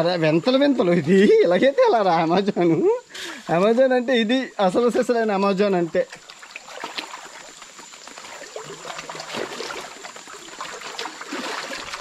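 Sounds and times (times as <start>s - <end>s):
stream water flowing: 4.7s - 12.0s
wading splashes: 5.6s - 12.0s.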